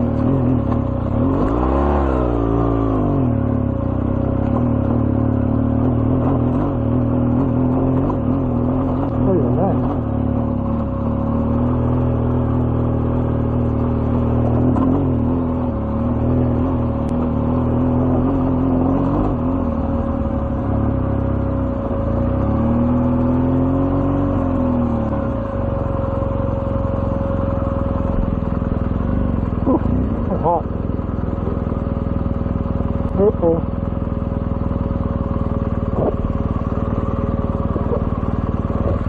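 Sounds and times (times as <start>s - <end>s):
motorcycle engine running: 0.0s - 39.0s.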